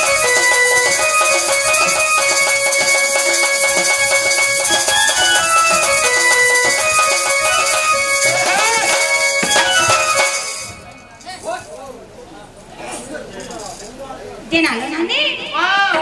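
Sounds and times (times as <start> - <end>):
barrel drum beat: 0.0 - 11.0
folk dance melody: 0.0 - 11.5
rattle: 0.0 - 11.9, 13.3 - 14.2.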